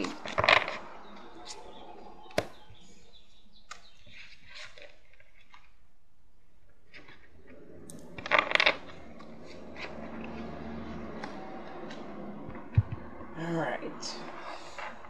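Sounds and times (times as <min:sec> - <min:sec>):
cards rustling: 0:08.0 - 0:12.8.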